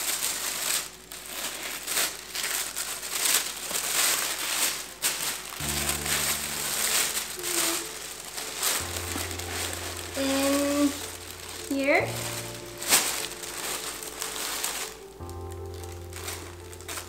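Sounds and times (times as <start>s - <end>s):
tissue paper rustling: 0.0s - 17.0s
steady low tone: 5.5s - 17.0s.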